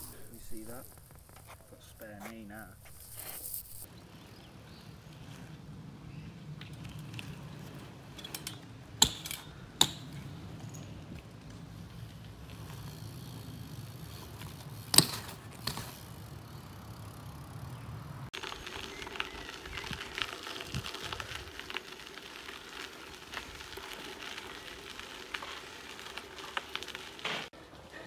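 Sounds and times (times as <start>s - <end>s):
bicycle tyres crunching on gravel: 0.0s - 28.0s
bike clack on concrete: 6.6s - 17.7s, 26.5s - 27.5s.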